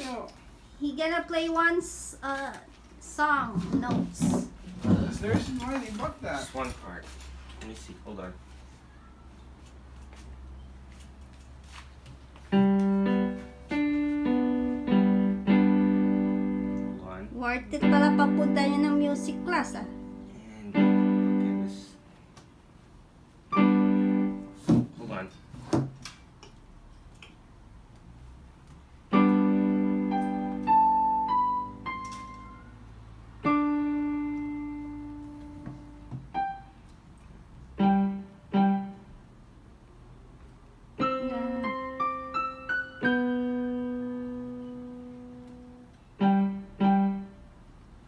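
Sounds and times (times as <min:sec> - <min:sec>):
electronic keyboard piano: 0:12.4 - 0:22.1, 0:23.5 - 0:25.3, 0:28.9 - 0:39.6, 0:40.9 - 0:48.0.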